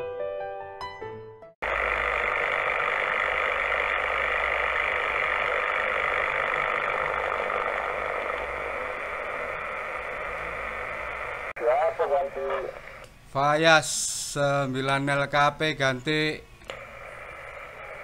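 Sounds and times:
low hum: 1.6s - 13.1s, 16.6s - 18.0s
radio static rush: 1.6s - 13.1s, 16.7s - 18.0s.

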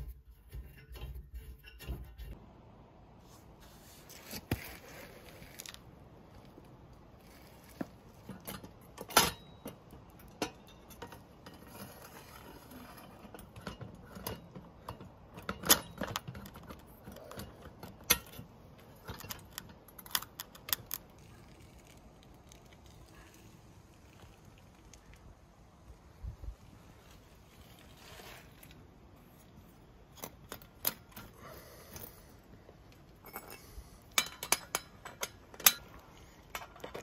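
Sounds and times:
metal clicks and clanks: 8.1s - 21.2s, 32.9s - 37.0s.

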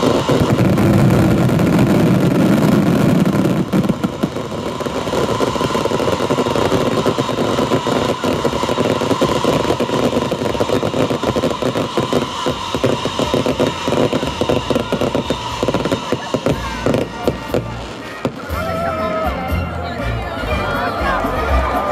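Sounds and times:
fireworks rockets firing: 0.0s - 18.6s.

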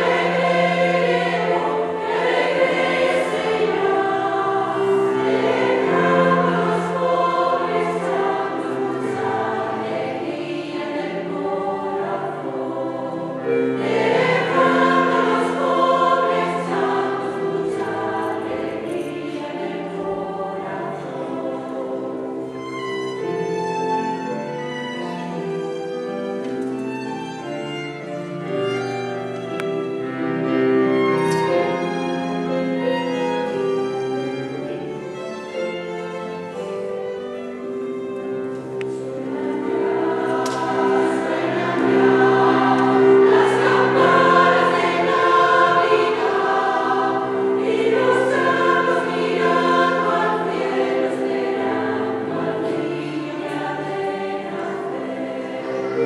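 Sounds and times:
women's choir singing: 0.0s - 25.1s, 38.7s - 56.0s
piano: 0.0s - 56.0s
violin: 0.0s - 56.0s.

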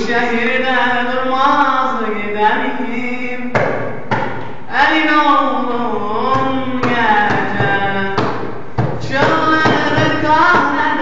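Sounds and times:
men singing folk song: 9.0s - 11.0s.

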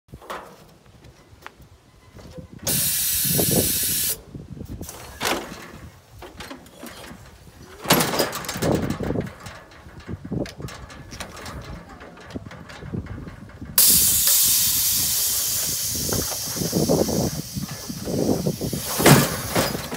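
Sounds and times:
metal clanks and rattles: 0.1s - 1.3s, 4.8s - 19.9s
machine hissing air: 2.7s - 4.2s, 13.8s - 19.9s.

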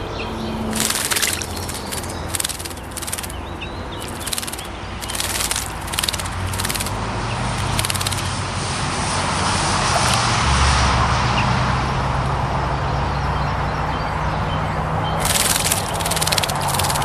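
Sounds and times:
vehicle engine and tyre noise: 0.0s - 17.0s
bird splashing in birdbath: 0.7s - 8.4s, 15.2s - 17.0s.

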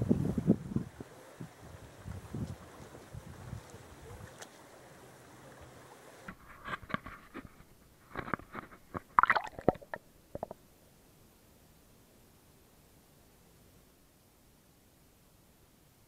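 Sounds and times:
flowing water: 0.0s - 10.7s
faint wind: 0.0s - 16.0s
short splashes: 8.9s - 10.5s.

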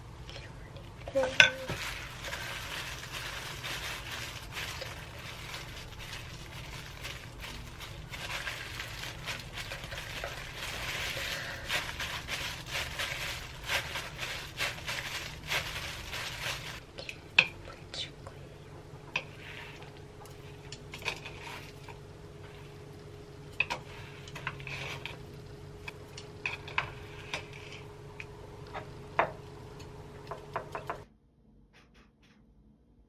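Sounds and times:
plastic gloves crinkling: 0.9s - 16.8s, 19.2s - 28.8s.

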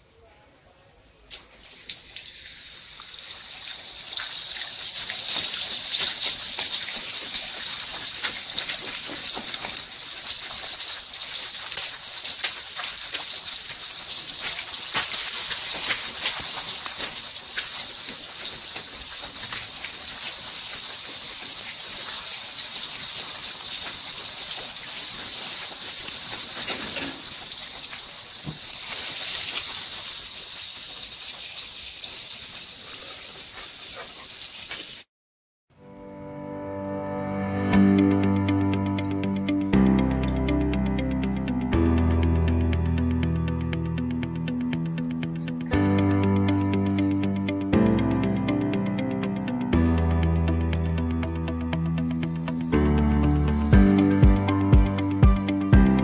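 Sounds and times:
egg sizzling in hot oil: 1.8s - 35.1s.

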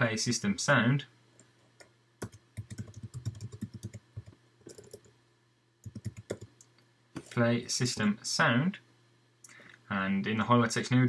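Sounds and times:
computer keyboard typing: 1.8s - 5.1s, 5.8s - 6.6s.

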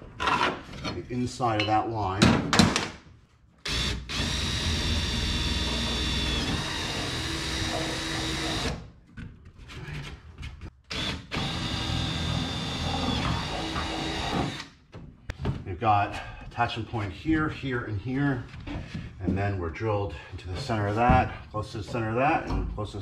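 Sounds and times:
cordless drill whining: 3.7s - 8.8s, 10.9s - 14.7s.

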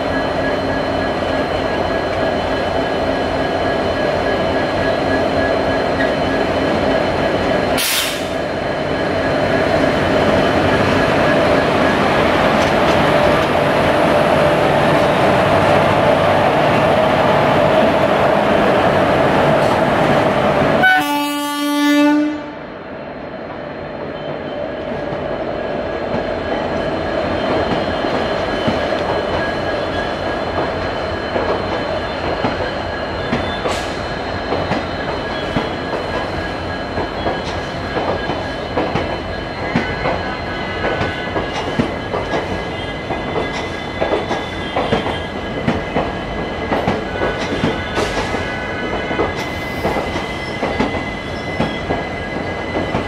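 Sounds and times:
train coaches rolling on rails: 0.0s - 21.8s, 23.6s - 53.0s
locomotive horn blast: 20.8s - 22.7s
train wheels clicking over rail joints: 26.1s - 53.0s.

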